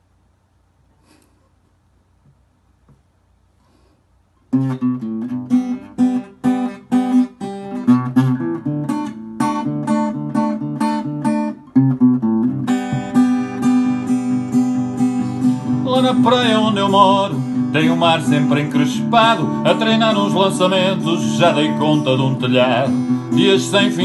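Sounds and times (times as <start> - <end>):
acoustic guitar strumming chords: 4.5 - 24.0.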